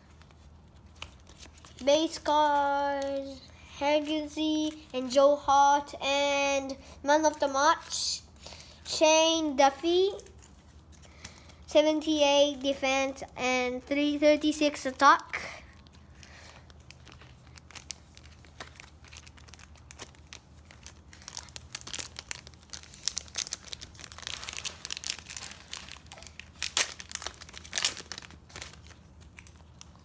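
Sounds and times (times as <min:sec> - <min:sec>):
foil wrapper crinkling: 0:15.2 - 0:30.0
foil snapping: 0:16.9 - 0:29.6.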